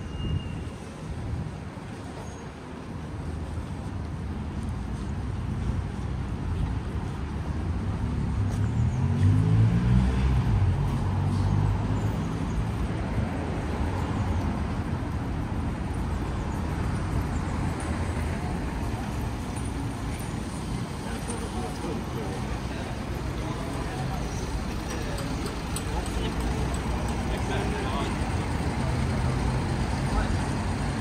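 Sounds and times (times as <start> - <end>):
steady traffic hum: 0.0 - 31.0
vehicle engine accelerating past: 8.8 - 11.9.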